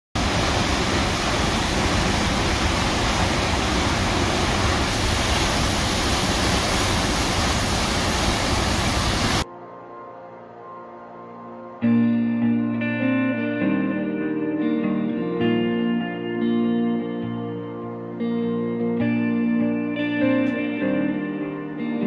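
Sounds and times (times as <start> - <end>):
waterfall roaring: 0.2 - 9.4
soft music: 9.4 - 22.0.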